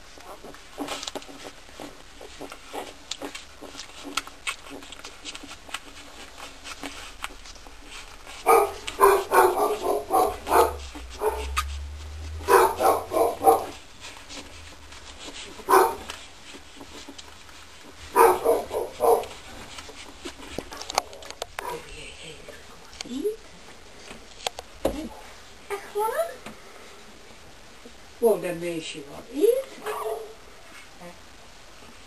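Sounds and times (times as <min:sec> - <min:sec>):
dog barking: 0:08.4 - 0:11.6, 0:12.5 - 0:13.8, 0:15.7 - 0:16.1, 0:18.1 - 0:19.3, 0:29.8 - 0:30.4.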